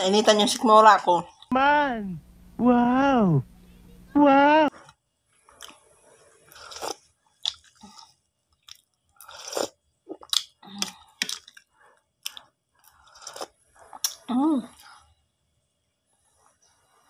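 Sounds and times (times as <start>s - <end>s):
person chewing: 5.5s - 14.3s
person slurping soup: 5.7s - 7.1s, 9.2s - 11.5s.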